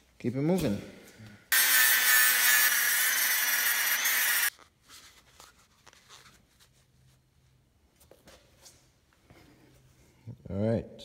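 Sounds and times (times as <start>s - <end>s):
rotary tool grinding: 1.5s - 4.5s.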